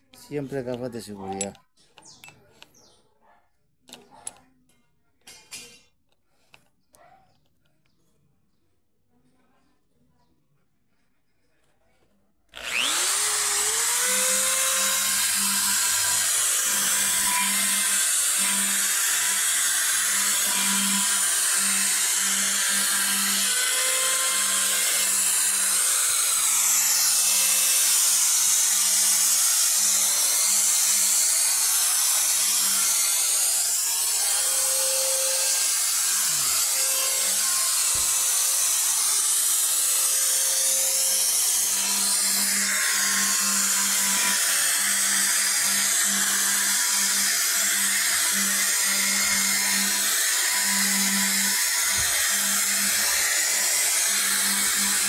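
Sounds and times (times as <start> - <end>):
electric drill motor hum: 12.5 - 55.0.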